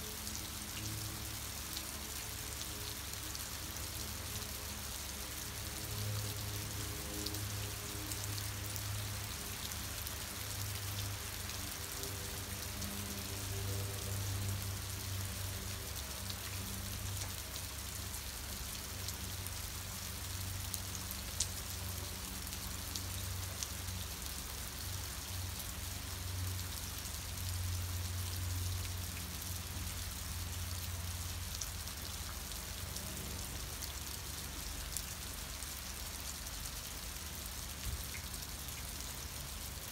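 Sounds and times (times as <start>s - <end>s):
rain pattering on roof: 0.0s - 39.9s.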